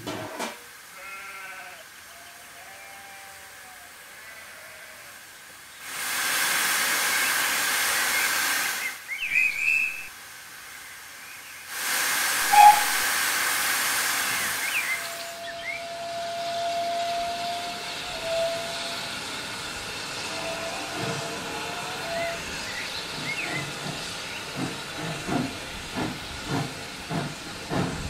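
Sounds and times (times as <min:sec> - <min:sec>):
steam hissing from locomotive: 0:00.0 - 0:28.0.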